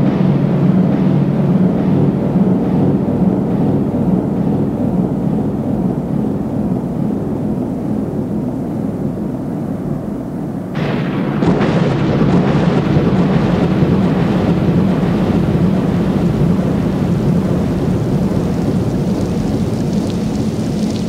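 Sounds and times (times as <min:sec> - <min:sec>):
waterfall splashing into pool: 0:17.4 - 0:21.0.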